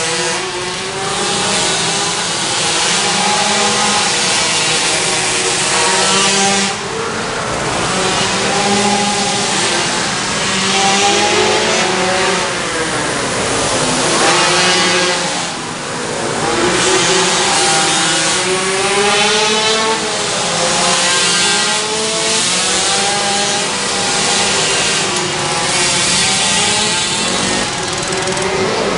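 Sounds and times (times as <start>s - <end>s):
small racing engines revving: 0.0s - 28.9s.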